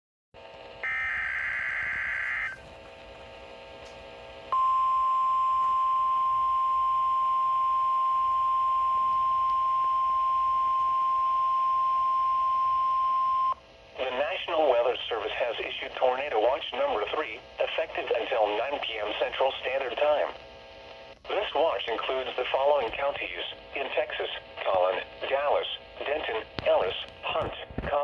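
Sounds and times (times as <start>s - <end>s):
steady alert tone: 0.8s - 2.6s
faint radio hiss: 13.6s - 28.0s.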